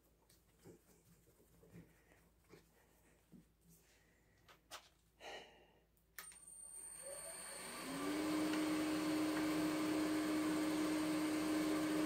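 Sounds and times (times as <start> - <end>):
lathe motor whining: 6.6 - 12.0.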